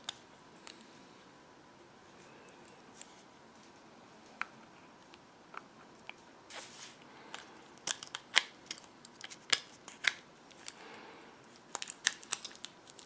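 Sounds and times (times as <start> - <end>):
soft rubbing: 6.5 - 7.0.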